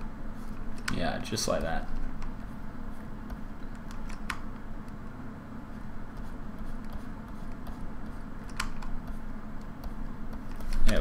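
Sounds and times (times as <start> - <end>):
steady low hum: 0.0 - 11.0
keyboard or mouse clicks: 3.7 - 4.5, 8.4 - 9.0.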